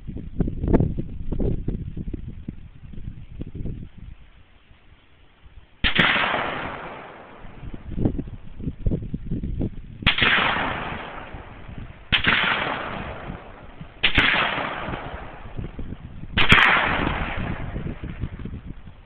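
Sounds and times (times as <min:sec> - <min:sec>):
sharp echoing bangs: 0:05.8 - 0:08.1, 0:10.0 - 0:18.5.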